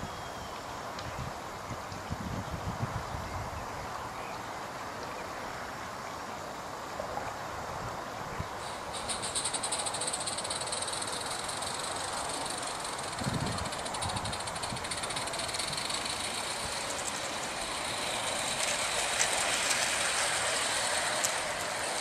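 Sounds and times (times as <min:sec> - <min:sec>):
model steam locomotive chuffing: 0:08.6 - 0:22.0.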